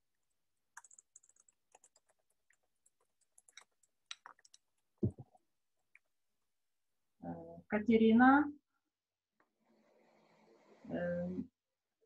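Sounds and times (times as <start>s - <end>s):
computer keyboard clicking: 0.2s - 4.6s.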